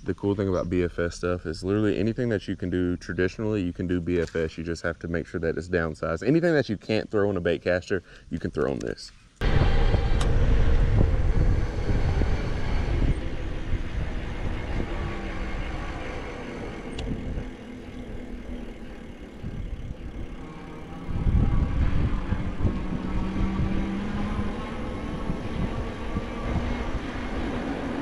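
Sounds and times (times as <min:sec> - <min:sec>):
electric motor hum: 0:09.4 - 0:28.0
wind buffeting microphone: 0:09.4 - 0:28.0.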